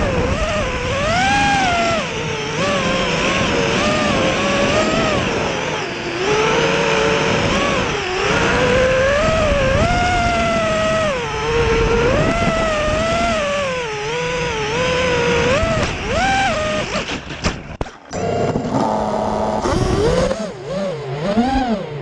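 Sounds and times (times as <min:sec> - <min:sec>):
wind rush: 0:00.0 - 0:16.2
drone motors whining: 0:00.0 - 0:22.0.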